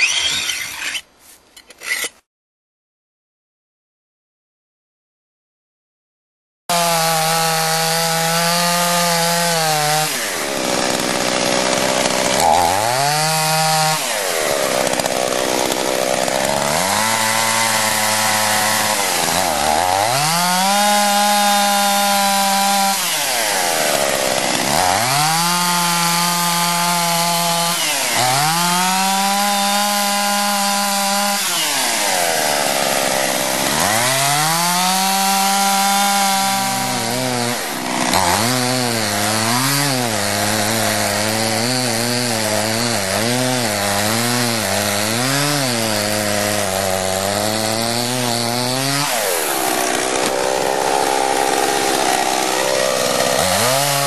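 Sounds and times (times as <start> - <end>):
chainsaw cutting into ice: 0.0 - 1.0, 1.7 - 2.2, 6.7 - 54.0.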